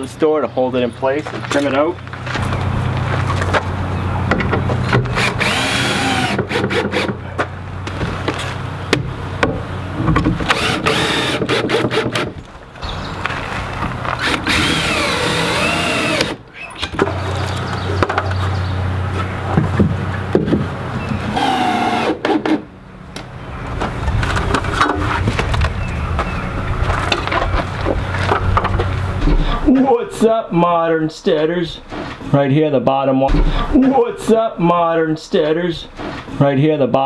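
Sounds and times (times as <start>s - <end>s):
cordless drill driving screws: 5.2s - 7.1s, 10.5s - 12.3s, 14.2s - 16.4s.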